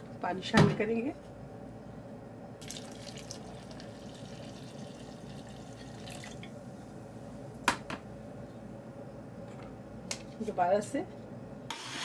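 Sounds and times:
water pouring into blender jar: 0:02.6 - 0:06.5.

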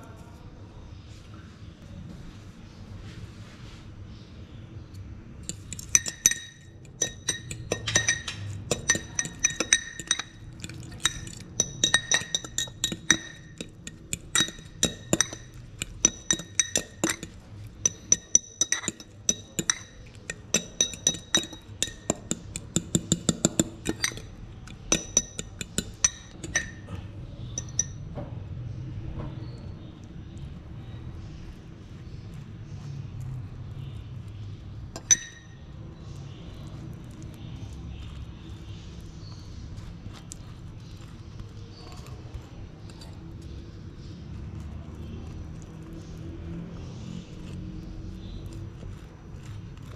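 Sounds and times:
metal fork clinking glass bowl: 0:05.4 - 0:28.1, 0:34.9 - 0:37.2.

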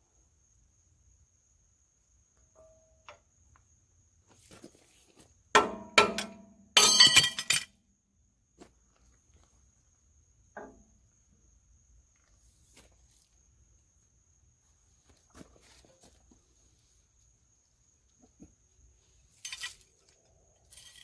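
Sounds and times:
metal-on-metal clattering: 0:05.6 - 0:07.7
sharp metal knocks: 0:05.6 - 0:07.7.

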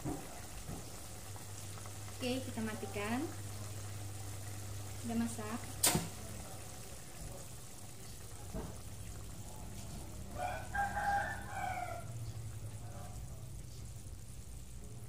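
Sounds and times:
rooster crowing: 0:10.2 - 0:12.3.

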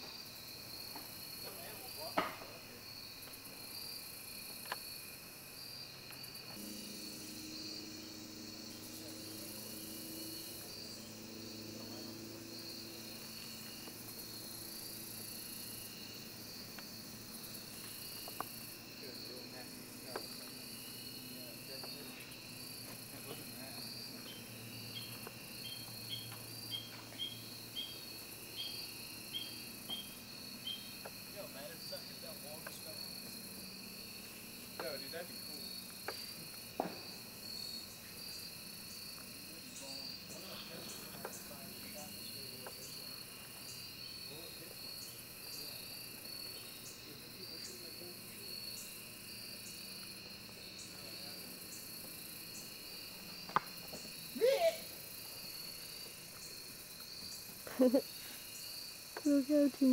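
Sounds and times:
crickets chirping: 0:00.0 - 0:59.9.

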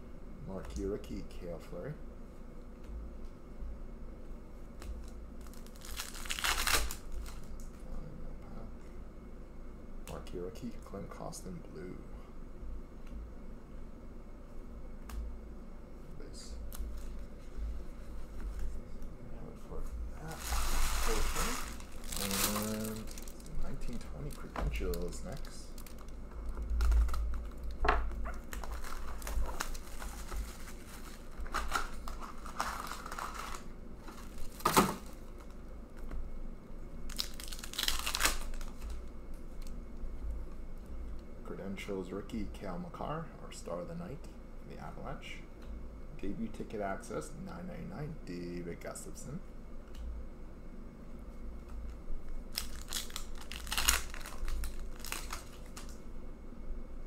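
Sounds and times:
foil pack ripping: 0:05.0 - 0:07.6, 0:20.2 - 0:27.8, 0:28.4 - 0:35.6, 0:37.1 - 0:39.0, 0:52.5 - 0:56.0
wrapper crinkling and tearing: 0:05.0 - 0:07.6, 0:20.2 - 0:35.6, 0:37.0 - 0:39.7, 0:52.5 - 0:56.0.

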